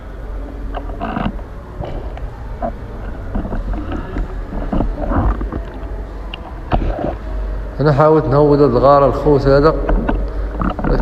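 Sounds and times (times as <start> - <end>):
muffled underwater rumble: 0.0 - 7.8.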